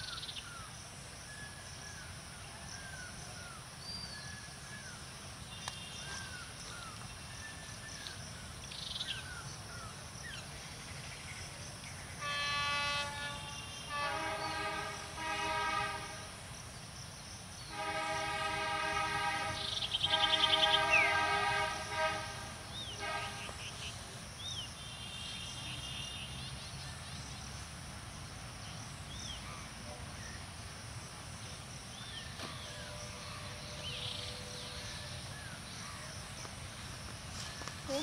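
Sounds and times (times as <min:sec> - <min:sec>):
locomotive horn blast: 0:12.2 - 0:16.4, 0:17.7 - 0:23.9
birds chirping: 0:17.6 - 0:27.4.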